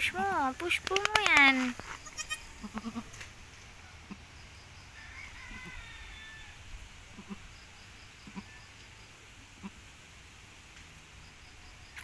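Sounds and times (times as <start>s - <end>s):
faint high goat call: 1.9s - 3.2s, 5.2s - 7.5s.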